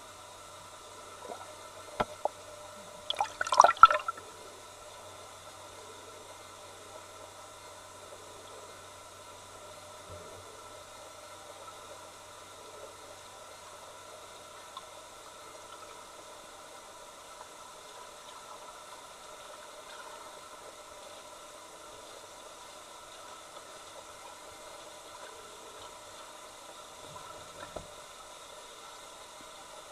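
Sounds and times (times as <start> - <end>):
faint steady hum: 0.0 - 29.9
underwater recording hiss: 0.0 - 29.9
soft ticks: 14.7 - 14.9.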